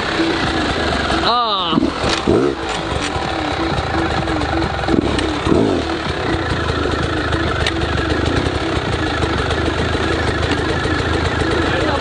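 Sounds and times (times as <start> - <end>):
dirt bike engine idling: 0.0 - 12.0
throttle blips: 0.0 - 12.0.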